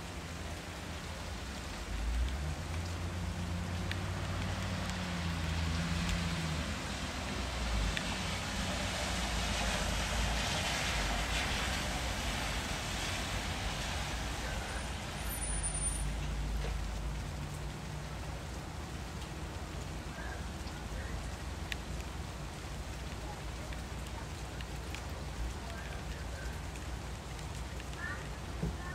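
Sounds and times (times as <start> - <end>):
background rumble and hiss: 13.6 - 28.9.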